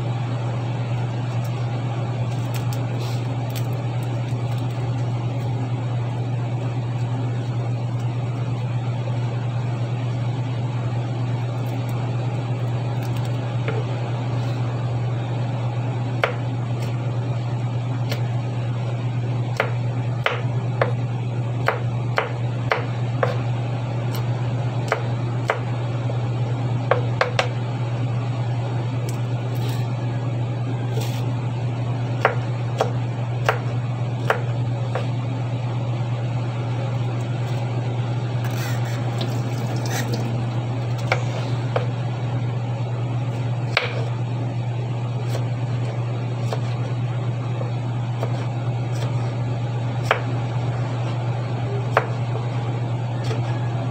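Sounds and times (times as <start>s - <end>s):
steady low hum: 0.0s - 53.9s.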